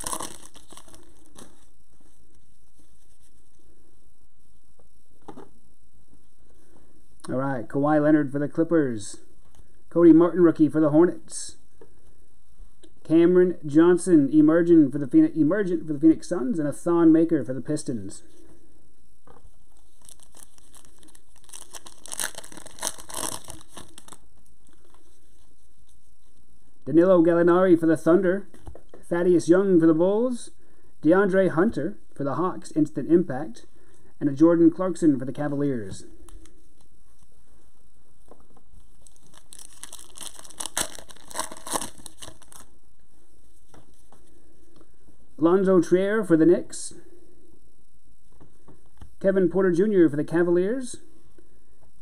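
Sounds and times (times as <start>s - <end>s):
wrapper tearing and crinkling: 0.0s - 1.7s, 19.8s - 24.8s, 39.0s - 42.7s
trading cards rustling and sliding: 39.0s - 42.6s.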